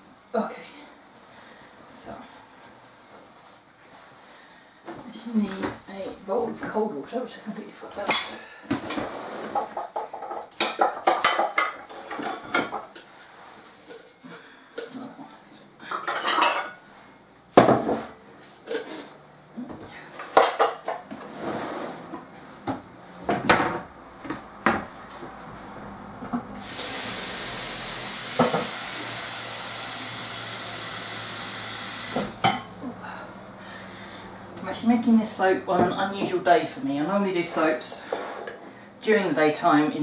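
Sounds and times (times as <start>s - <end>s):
dishes clattering on worktop: 8.1s - 13.1s, 15.9s - 16.8s, 20.2s - 21.3s, 32.4s - 32.7s
tap running into bowl: 28.4s - 28.8s.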